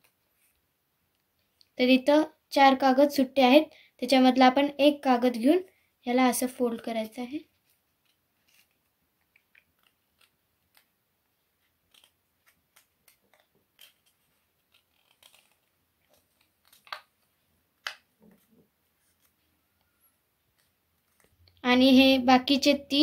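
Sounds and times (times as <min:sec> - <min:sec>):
paper crinkling and rustling: 0:07.5 - 0:17.4, 0:18.1 - 0:21.6
sharp paper crackles: 0:07.5 - 0:19.5, 0:20.5 - 0:21.6.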